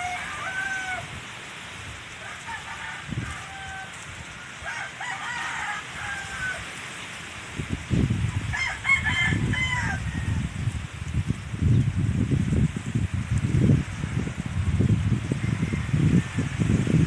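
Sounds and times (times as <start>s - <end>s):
roosters crowing: 0.0s - 7.2s, 8.3s - 10.7s, 15.2s - 17.0s
wind buffeting microphone: 0.0s - 17.0s.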